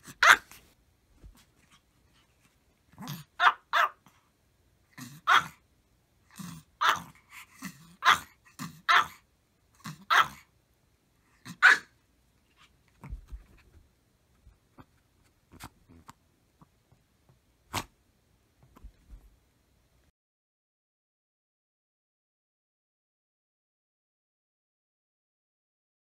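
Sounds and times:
small dog barking: 0:00.0 - 0:00.6, 0:03.0 - 0:04.2, 0:05.0 - 0:05.6, 0:06.4 - 0:09.2, 0:09.8 - 0:10.5, 0:11.4 - 0:12.0.

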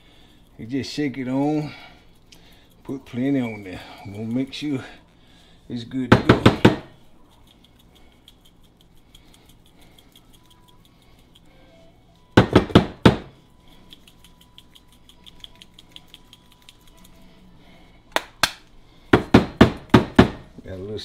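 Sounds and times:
shaker bottle rattling: 0:13.7 - 0:17.2.

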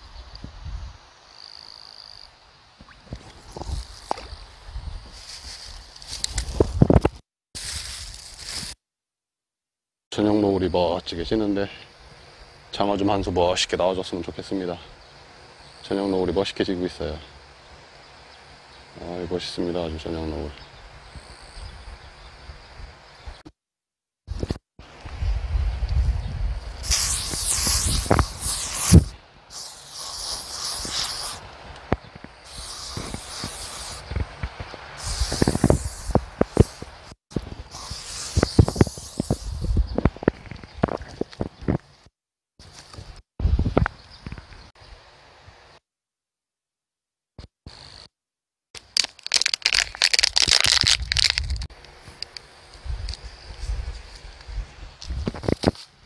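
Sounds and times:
close crackling and rustling: 0:05.0 - 0:08.8, 0:26.7 - 0:44.6, 0:48.8 - 0:56.0
high hissing bursts: 0:26.5 - 0:39.9.

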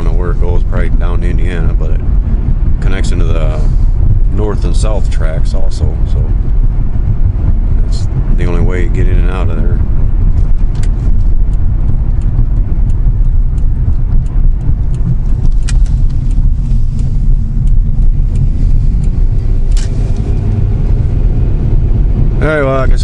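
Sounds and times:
car cabin engine and tyre rumble: 0:00.0 - 0:23.0
faint ticks: 0:10.5 - 0:19.5.

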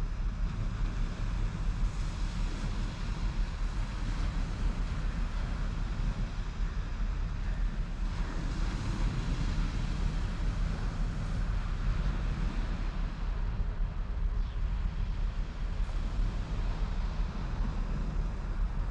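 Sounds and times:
wind buffeting microphone: 0:00.0 - 0:18.9
waves washing on beach: 0:00.2 - 0:14.0.

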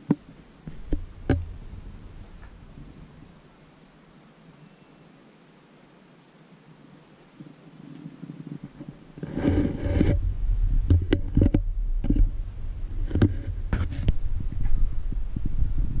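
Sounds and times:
rustling: 0:00.0 - 0:04.9, 0:06.6 - 0:15.8
low rumble: 0:00.7 - 0:03.5, 0:09.7 - 0:16.0
sharp knocks and clicks: 0:10.9 - 0:12.3.

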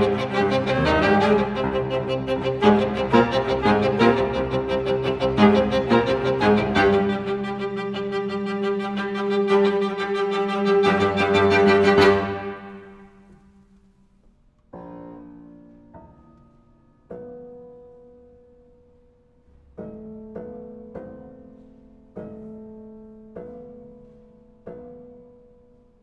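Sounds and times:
piano chords ringing: 0:00.0 - 0:13.3.

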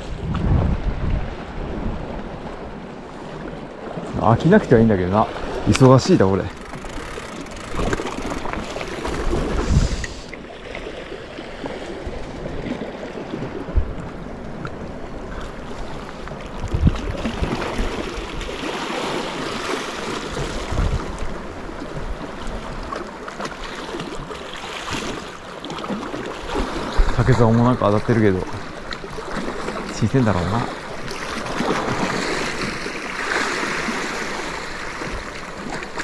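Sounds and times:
sea waves splashing on rocks: 0:28.5 - 0:36.0.

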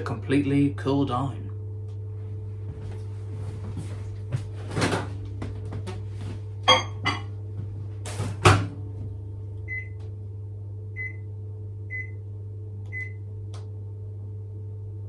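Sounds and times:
steady low hum: 0:00.0 - 0:15.0
microwave door shutting: 0:08.1 - 0:08.8
keypad beeps: 0:12.9 - 0:13.2.

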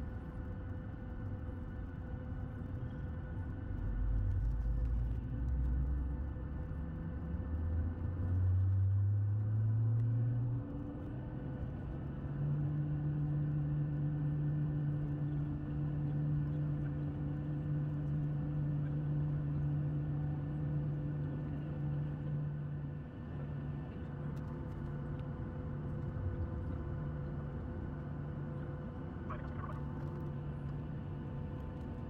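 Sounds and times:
airplane cabin drone: 0:00.0 - 0:32.0.

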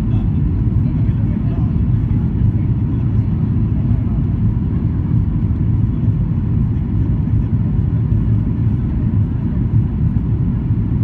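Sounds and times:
jet engine rumble in cabin: 0:00.0 - 0:11.0.

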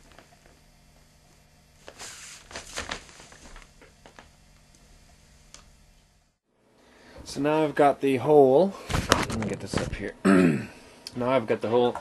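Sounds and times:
plastic rustling: 0:01.9 - 0:04.3.

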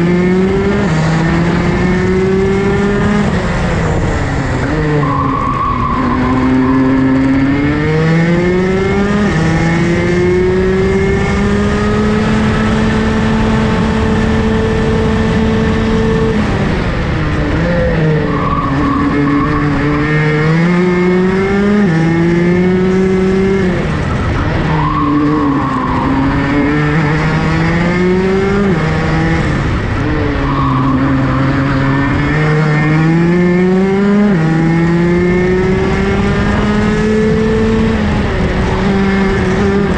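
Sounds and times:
kart engine accelerating: 0:00.0 - 0:39.9
tyre squeals: 0:05.0 - 0:07.2, 0:18.1 - 0:20.1, 0:24.6 - 0:27.2, 0:30.2 - 0:32.2.

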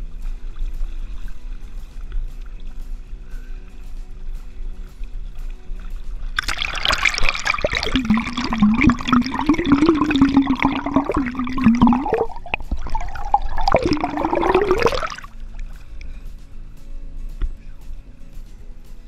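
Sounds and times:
steady low tone: 0:00.0 - 0:19.0
river water rushing and gurgling: 0:04.4 - 0:15.7.

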